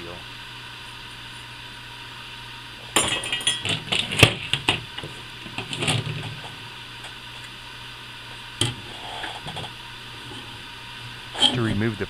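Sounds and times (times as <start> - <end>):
steady low hum: 0.0 - 12.0
rustle and clatter: 3.0 - 7.5.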